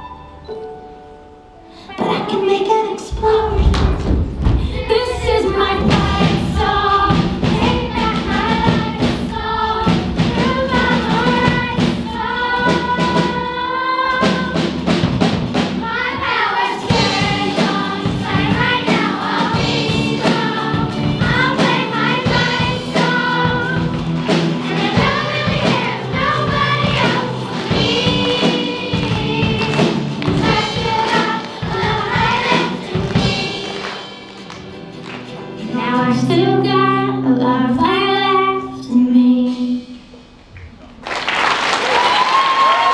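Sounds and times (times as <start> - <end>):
girl singing into a microphone: 1.8 - 14.5, 35.6 - 40.0
children singing together: 3.1 - 34.4
music with drums: 3.1 - 35.6.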